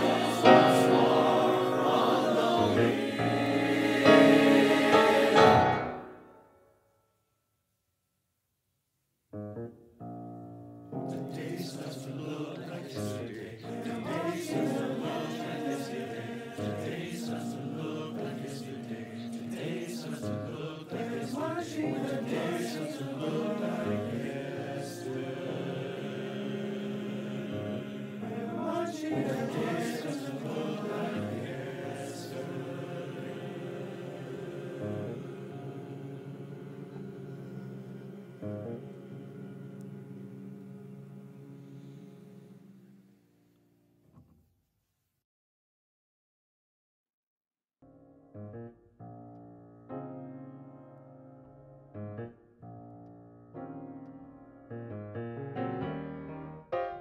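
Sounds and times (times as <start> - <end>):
choir singing: 0.0 - 6.4, 11.1 - 43.0.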